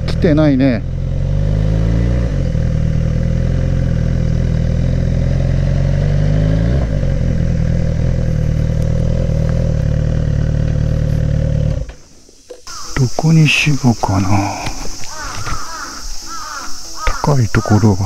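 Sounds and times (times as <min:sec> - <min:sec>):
motorcycle engine running: 0:00.0 - 0:12.1.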